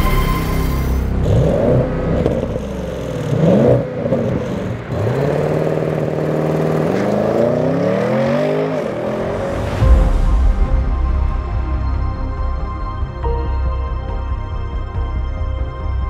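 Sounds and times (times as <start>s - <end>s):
car engine revving: 0.0s - 10.2s.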